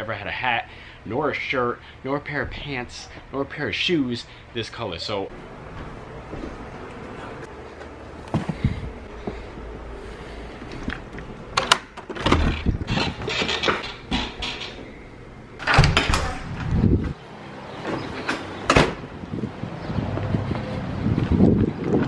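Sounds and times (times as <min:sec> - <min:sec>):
footsteps: 0:05.3 - 0:11.3.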